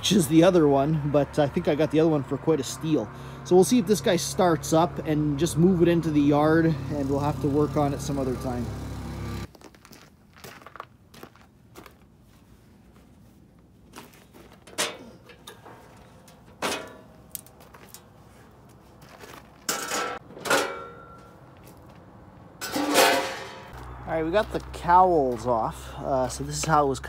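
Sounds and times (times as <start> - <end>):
sheet metal clicks and rattles: 14.6 - 18.1, 22.6 - 23.7
metallic clanks: 14.6 - 18.2, 19.6 - 21.4, 22.6 - 23.8.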